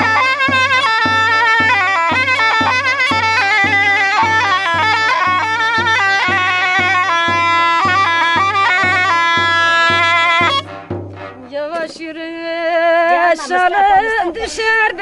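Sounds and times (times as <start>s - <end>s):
low regular beat: 0.0s - 12.2s
zurna folk melody: 0.0s - 15.0s.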